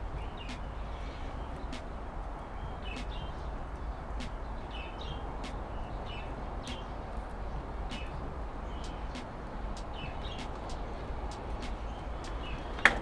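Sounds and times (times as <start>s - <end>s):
low outdoor rumble: 0.0s - 13.0s
small birds chirping: 0.0s - 13.0s
sharp ticks: 1.6s - 4.4s, 7.9s - 13.0s.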